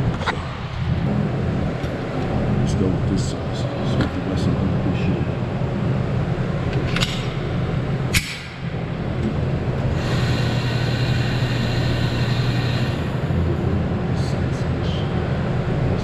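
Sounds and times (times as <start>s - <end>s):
low rumble: 0.0s - 3.1s.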